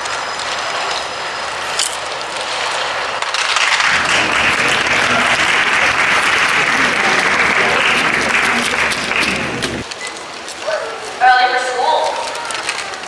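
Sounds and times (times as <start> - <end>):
audience applause: 3.6 - 9.8.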